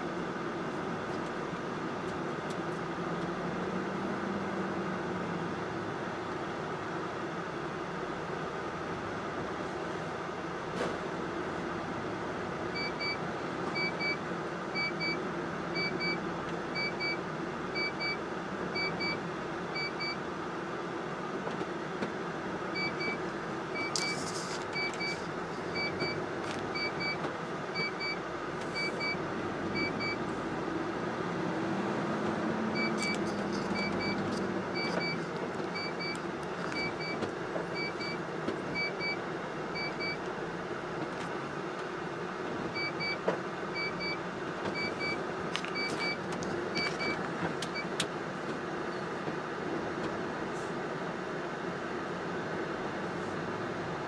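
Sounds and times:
truck engine and road noise: 0:00.0 - 0:54.0
deep engine drone: 0:22.7 - 0:40.2.

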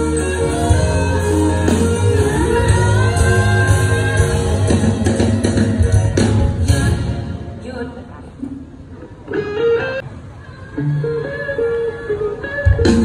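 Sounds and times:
person singing: 0:00.0 - 0:06.9
live band music over pa: 0:00.0 - 0:08.1, 0:09.1 - 0:13.0.

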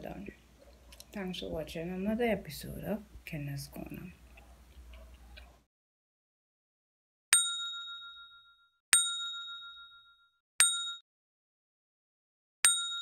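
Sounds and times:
bright bell ding: 0:07.4 - 0:11.0, 0:12.7 - 0:13.0.

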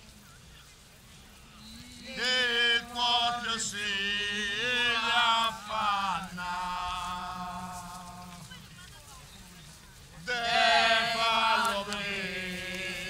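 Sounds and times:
person singing a slow chant: 0:01.6 - 0:08.6, 0:10.2 - 0:13.0.

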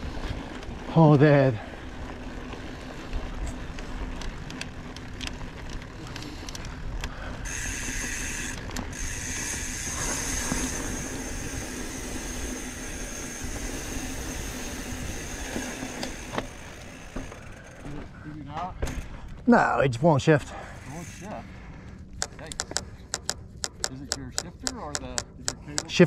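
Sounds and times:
bike clicks and rattles: 0:00.0 - 0:19.5, 0:20.6 - 0:26.0
bike freehub ratchet buzzing: 0:07.1 - 0:17.8, 0:20.7 - 0:21.4, 0:22.2 - 0:26.0.

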